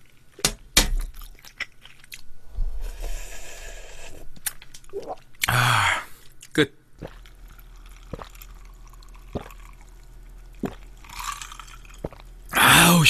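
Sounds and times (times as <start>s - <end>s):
person chewing: 1.2s - 2.3s, 4.3s - 12.6s
slurping soup: 2.6s - 5.1s, 7.0s - 12.3s.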